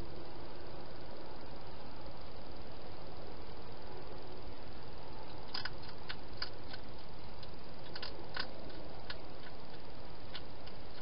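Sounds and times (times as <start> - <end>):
steady hiss: 0.0 - 11.0
hedgehog chewing clicks: 5.3 - 11.0.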